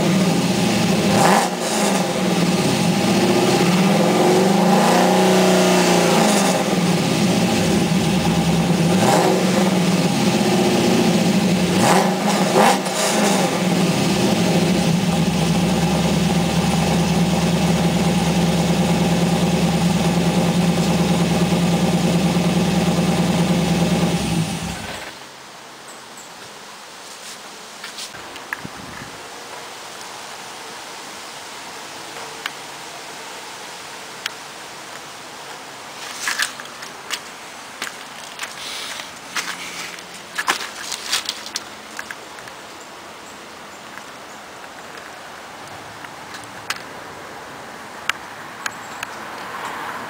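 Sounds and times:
car engine revving and idling: 0.0 - 25.2.

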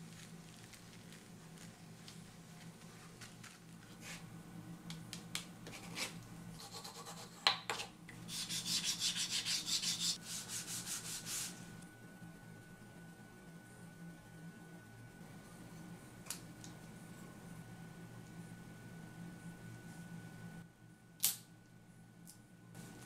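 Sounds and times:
cloth rubbing on leather: 8.3 - 11.6.

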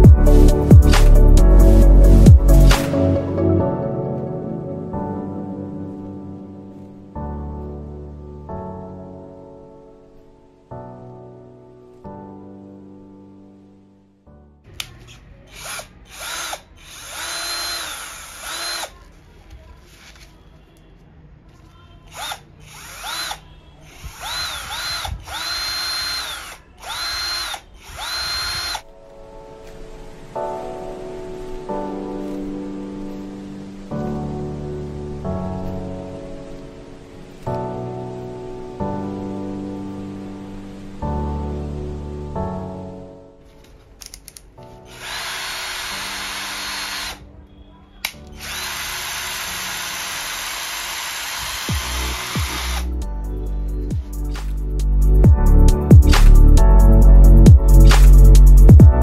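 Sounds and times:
sharp click: 2.7 - 3.0, 56.1 - 56.4, 57.9 - 58.4
cordless drill whining: 15.5 - 19.2, 22.0 - 28.9, 44.9 - 47.2, 48.0 - 53.0.

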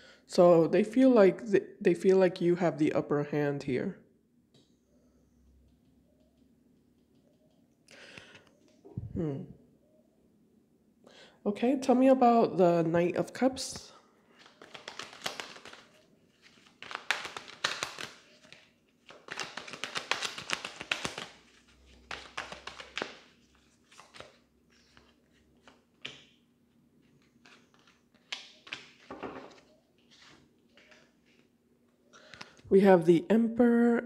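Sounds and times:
cards shuffling: 14.4 - 26.3, 27.0 - 31.5.

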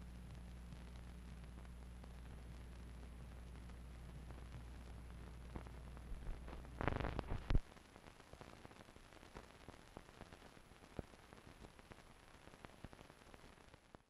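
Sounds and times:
low hum: 0.0 - 7.6
film soundtrack hiss: 0.0 - 14.0
clicks and pops: 5.6 - 7.6.

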